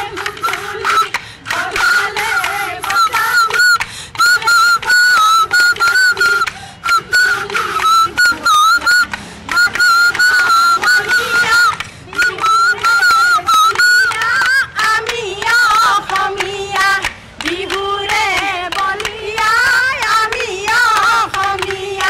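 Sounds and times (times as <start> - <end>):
rhythmic hand claps: 0.0 - 22.0
women singing folk song: 0.0 - 22.0.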